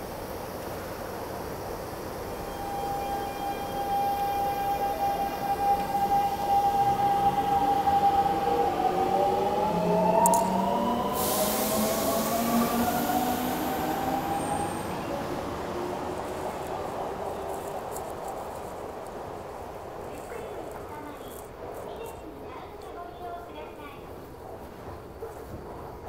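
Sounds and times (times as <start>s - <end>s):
hiss: 11.0s - 15.0s.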